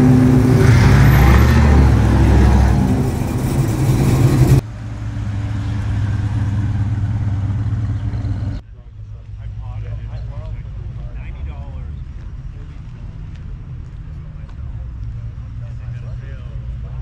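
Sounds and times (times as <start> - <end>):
loud car engine pulling away: 0.0 - 8.6
car engine driving slowly past: 0.0 - 17.0.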